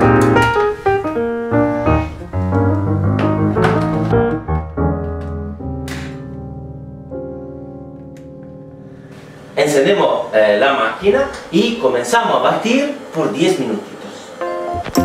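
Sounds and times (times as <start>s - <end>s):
piano music: 0.0s - 10.4s, 14.4s - 15.0s.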